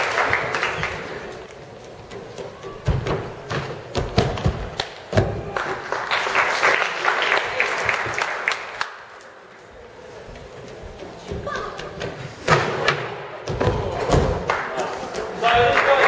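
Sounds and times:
audience clapping: 0.0s - 1.6s, 4.8s - 9.5s, 14.4s - 16.0s.

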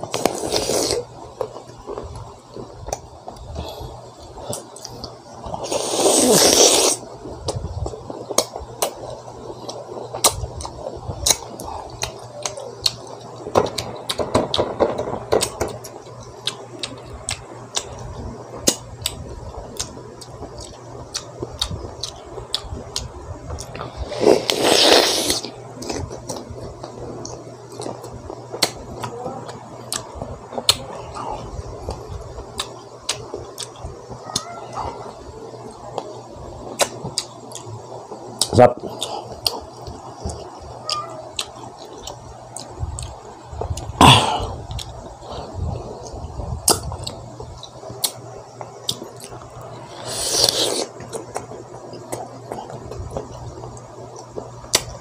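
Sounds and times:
person eating wet smacks: 36.8s - 37.7s
loud noise: 43.9s - 44.8s.

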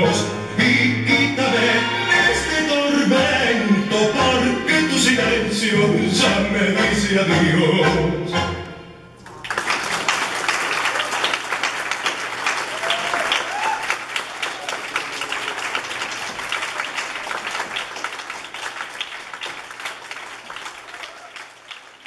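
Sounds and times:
audience applauding: 9.2s - 22.0s.

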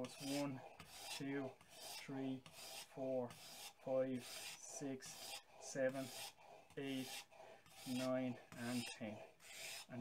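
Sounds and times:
blade rasping on water stone: 0.0s - 10.0s.

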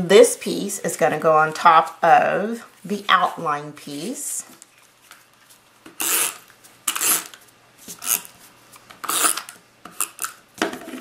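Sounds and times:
adhesive dispenser scraping paper: 6.0s - 8.4s, 9.0s - 10.2s.

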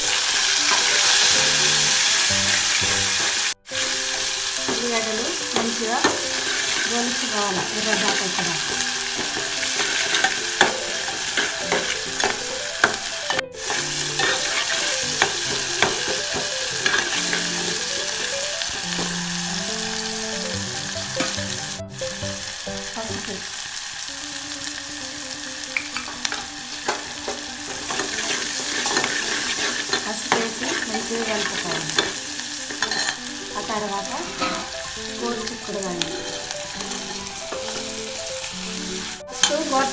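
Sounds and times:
onions sizzling in hot oil: 0.0s - 39.9s
metal spoon scraping pot: 6.1s - 16.2s, 16.8s - 17.7s, 26.9s - 33.2s.

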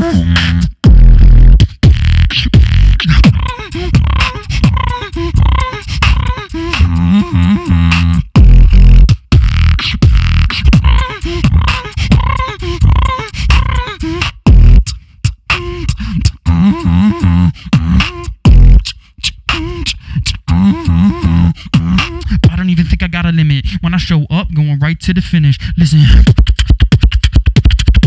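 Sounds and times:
beatboxing into a microphone: 0.0s - 28.0s
deep low booms: 7.2s - 12.3s.

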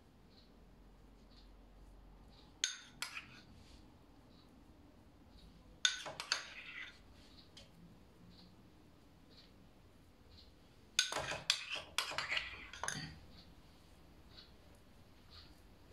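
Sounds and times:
metal utensil clinking on bowl: 5.8s - 7.0s, 11.0s - 13.2s.

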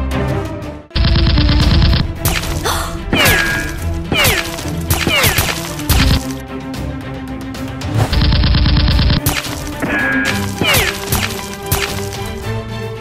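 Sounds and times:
action background music: 0.0s - 13.0s.

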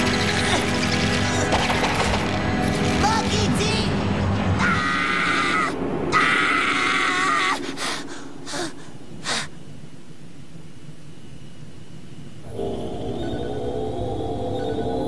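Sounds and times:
faint steady high tone: 11.0s - 15.0s.

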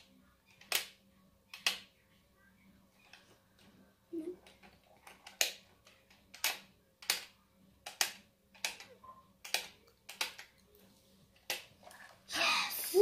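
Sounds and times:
plastic toy clicks: 4.5s - 10.5s.

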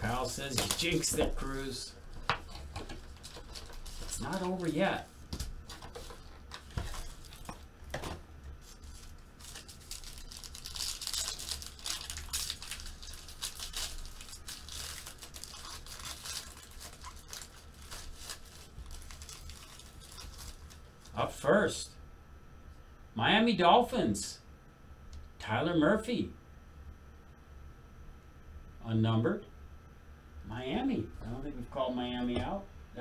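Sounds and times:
foil pack tearing and crinkling: 0.1s - 1.6s, 2.5s - 4.7s, 8.6s - 21.2s
cards and packaging rustling: 0.1s - 21.2s.

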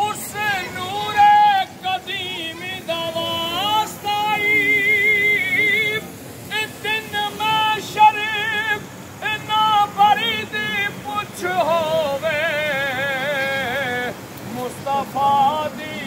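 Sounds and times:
person singing devotional song: 0.0s - 16.0s.

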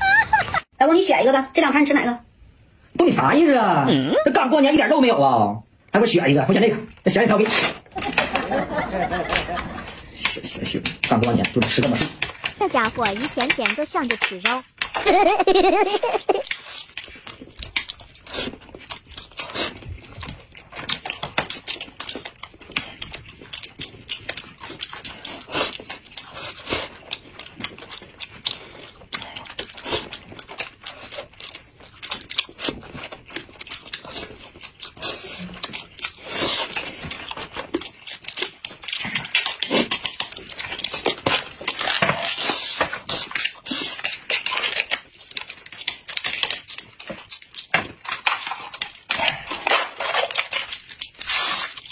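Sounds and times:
chewing and mouth smacks: 16.4s - 51.9s.

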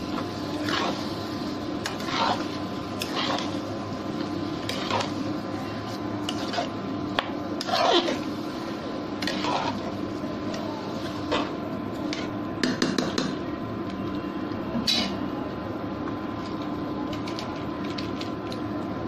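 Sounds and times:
faint hum: 0.0s - 19.0s
spoon scraping metal pot: 7.6s - 8.2s, 9.2s - 9.9s.

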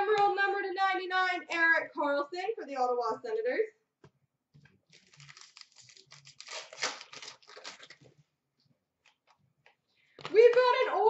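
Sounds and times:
wrapper tearing and crinkling: 4.9s - 8.1s.

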